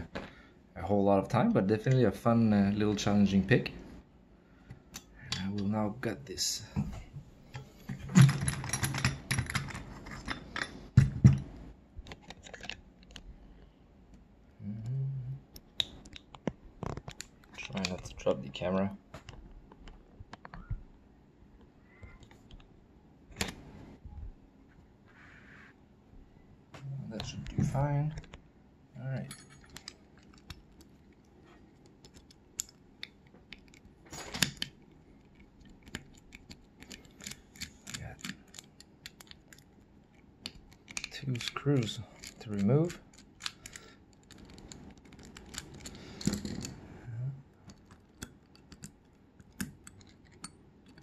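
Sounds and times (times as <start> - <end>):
lock cylinder metal clicks and rattles: 7.6 - 11.4, 29.2 - 31.2, 31.8 - 46.8, 47.7 - 51.0
metallic clicks of lock handled: 29.3 - 30.6, 35.7 - 39.7, 40.4 - 46.7.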